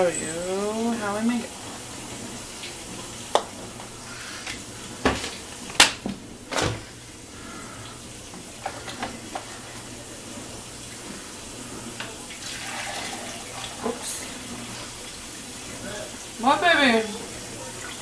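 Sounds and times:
kitchen items knocking and clattering: 0:05.0 - 0:06.9.

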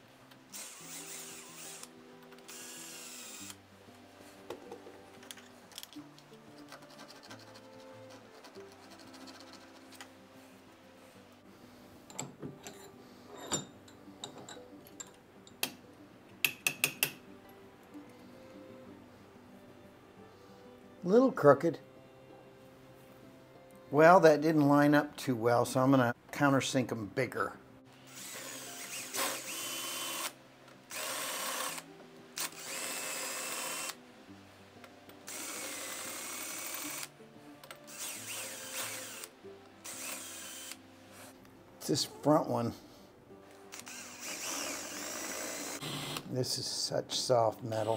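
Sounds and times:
faint background music: 0:00.0 - 0:47.9
metal parts clicking and knocking: 0:05.2 - 0:06.0.

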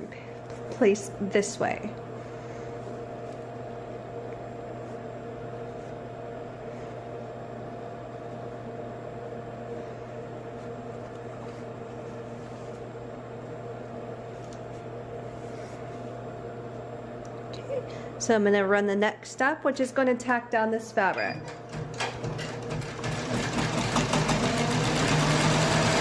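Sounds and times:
fan motor humming: 0:00.0 - 0:26.0
fabric rustling: 0:10.5 - 0:13.0.

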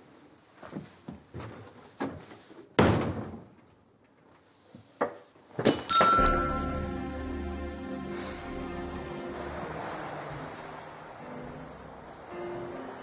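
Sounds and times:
background music with bass: 0:06.2 - 0:09.8.

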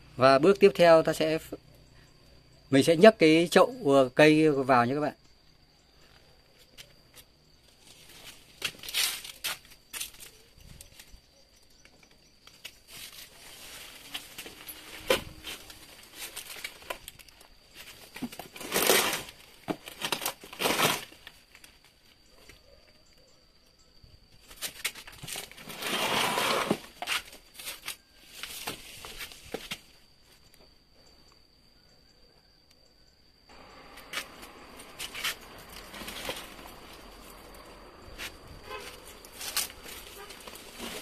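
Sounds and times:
rustling and scraping of soil: 0:05.8 - 0:22.9, 0:24.3 - 0:30.7, 0:33.5 - 0:41.0.

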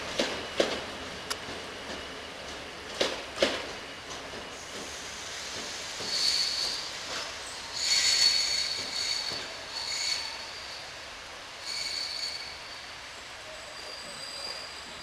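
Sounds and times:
train wheels squealing on rails: 0:04.4 - 0:15.0.

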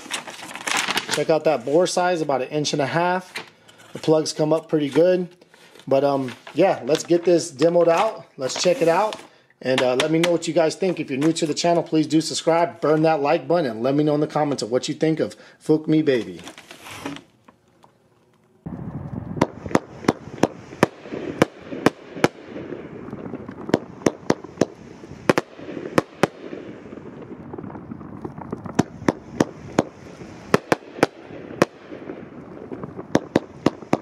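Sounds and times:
fireworks shots: 0:00.0 - 0:02.3, 0:09.8 - 0:13.2, 0:18.6 - 0:34.0.

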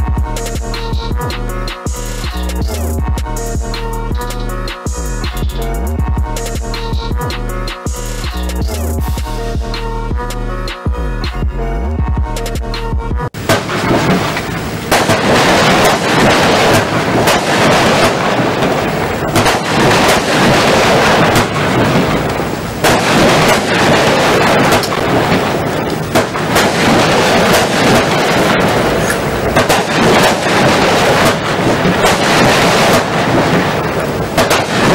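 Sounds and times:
firework barrage bangs: 0:13.4 - 0:34.9.

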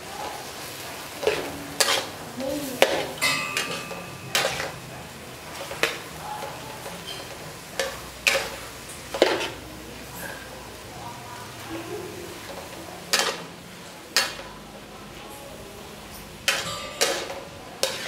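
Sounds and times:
metal ladle scraping a wok: 0:01.2 - 0:02.2, 0:02.8 - 0:04.9, 0:16.5 - 0:18.0.

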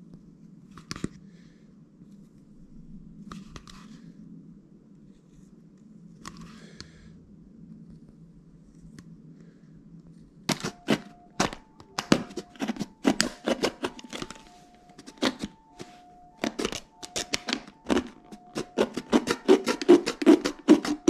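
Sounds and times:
plastic bottle crackling under knife: 0:10.5 - 0:21.0.

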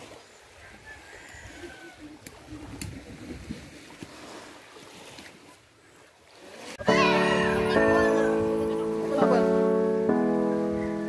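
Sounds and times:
gentle water at shoreline: 0:00.0 - 0:11.0
wind rumble on microphone: 0:00.7 - 0:03.9.

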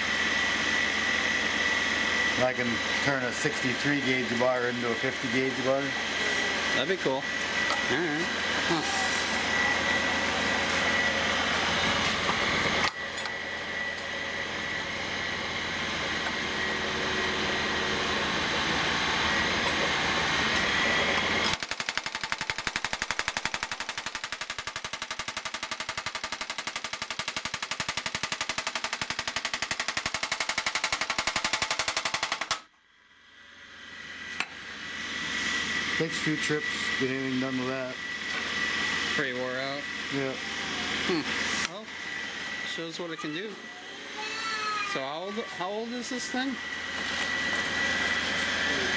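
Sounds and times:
machine motor hum and whine: 0:00.0 - 0:27.0, 0:33.0 - 0:48.9
power hammer on metal: 0:21.4 - 0:32.7.

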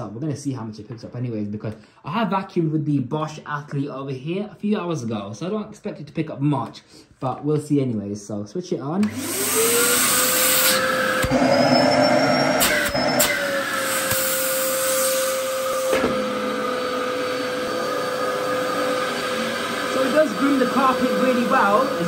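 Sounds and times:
vacuum cleaner motor whine: 0:09.0 - 0:22.0.

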